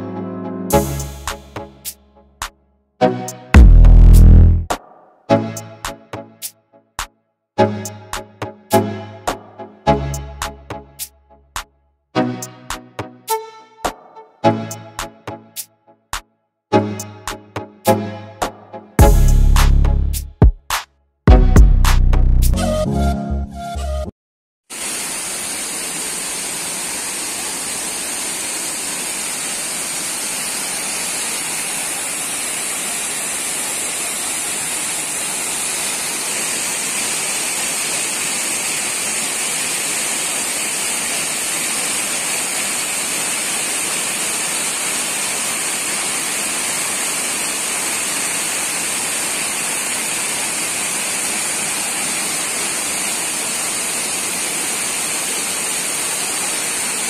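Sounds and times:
waterfall rushing: 24.7 - 57.0.

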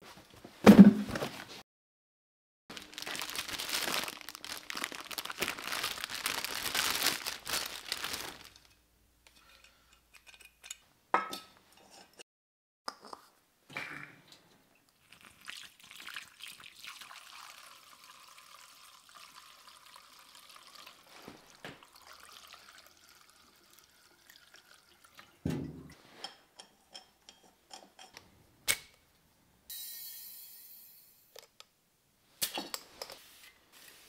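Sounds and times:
liquid pouring through funnel: 14.9 - 25.4.

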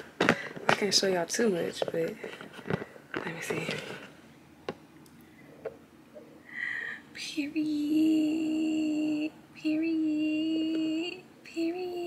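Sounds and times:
woman singing long notes: 7.2 - 12.0.

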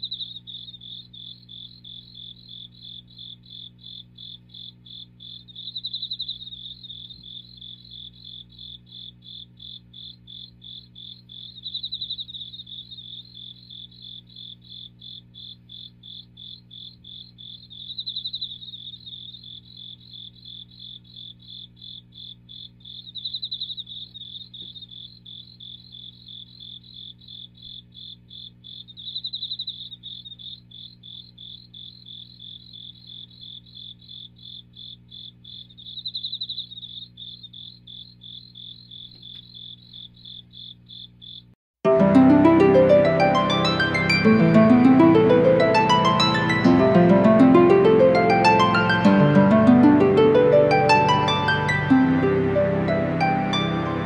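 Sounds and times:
cricket chirping: 0.0 - 41.6.

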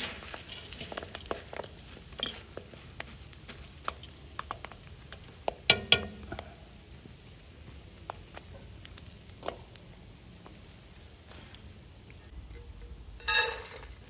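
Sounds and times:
popcorn popping: 0.1 - 6.6, 12.4 - 14.0.

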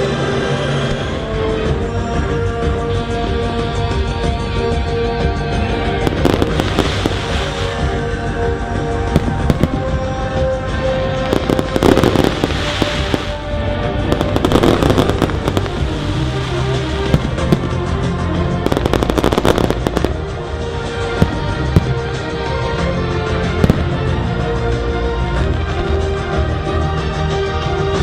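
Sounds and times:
music playing: 0.0 - 28.0
fireworks bangs and crackles: 5.7 - 26.4.

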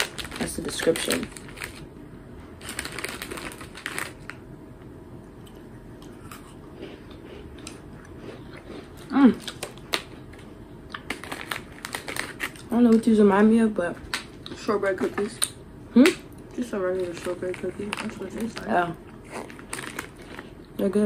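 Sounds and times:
crinkly biscuit packet handled: 0.0 - 1.9, 2.6 - 4.4, 9.4 - 13.1, 16.9 - 20.6
biscuit crunching and chewing: 5.3 - 13.0, 15.3 - 20.8.

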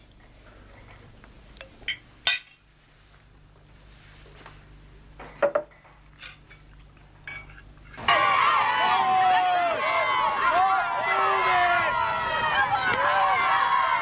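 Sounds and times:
low steady hum: 0.0 - 14.0
crockery and cutlery clinking: 5.3 - 8.1.

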